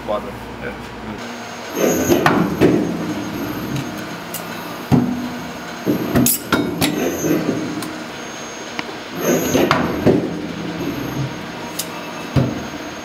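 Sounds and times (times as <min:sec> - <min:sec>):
machine hum: 0:01.2 - 0:13.0
sharp metallic knocks and clunks: 0:01.8 - 0:08.1, 0:09.2 - 0:12.8.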